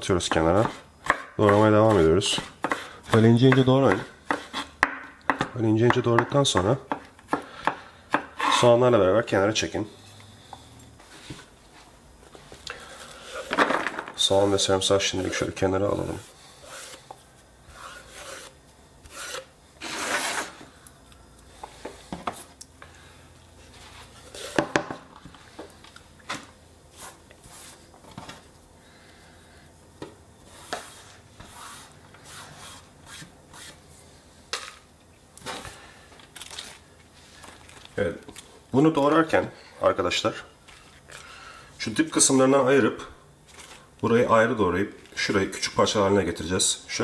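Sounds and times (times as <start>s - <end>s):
scraping on wooden cutting board: 3.9s - 4.8s, 14.3s - 20.6s, 23.7s - 24.8s.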